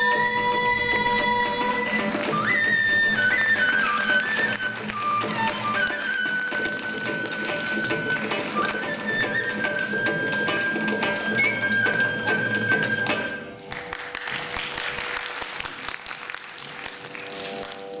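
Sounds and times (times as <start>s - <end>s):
bamboo flute high note: 0.0s - 13.6s
audience applause: 3.1s - 7.6s, 13.7s - 18.0s.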